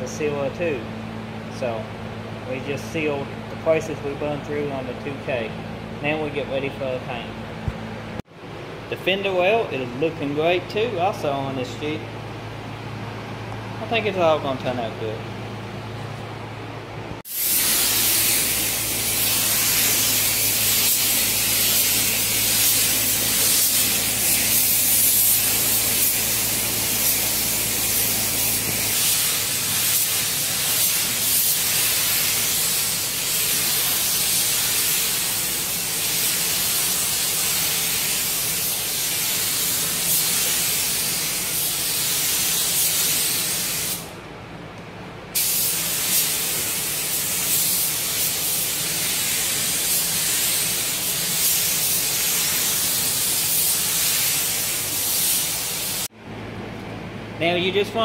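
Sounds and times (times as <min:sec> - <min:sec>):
paint spray gun hissing: 0:17.3 - 0:44.1, 0:45.4 - 0:56.1.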